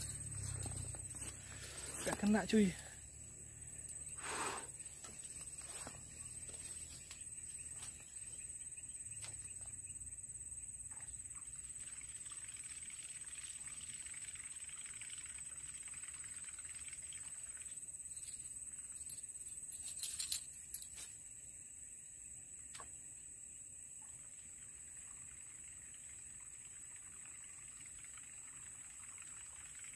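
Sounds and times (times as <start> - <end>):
high-pitched insect drone: 0.0 - 13.5.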